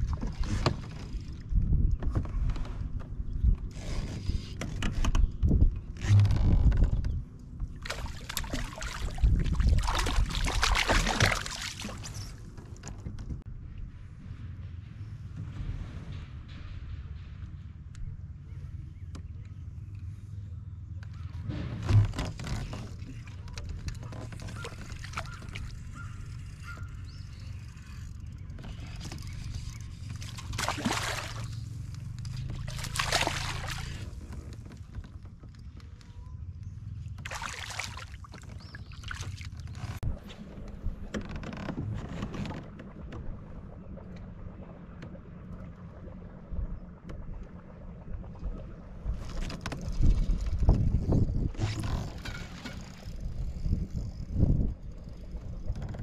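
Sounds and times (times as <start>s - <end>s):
fish splashing in water: 7.8s - 12.4s, 30.0s - 34.2s, 37.2s - 39.8s.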